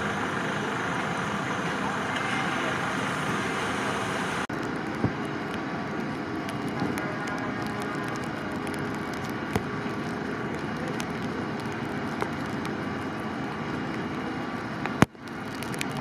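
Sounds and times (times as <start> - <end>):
engine running: 0.0 - 16.0.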